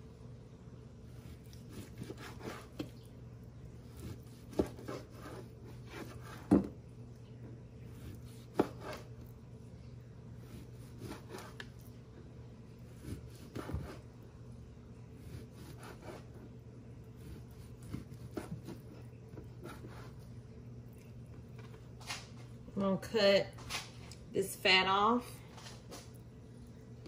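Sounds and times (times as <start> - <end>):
knife slicing through meat: 1.2 - 2.9, 10.4 - 11.7, 15.2 - 16.4.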